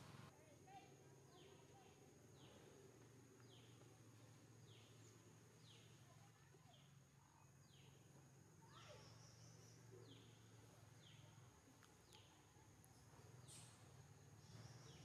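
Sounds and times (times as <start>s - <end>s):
high insect drone: 0.0s - 6.0s.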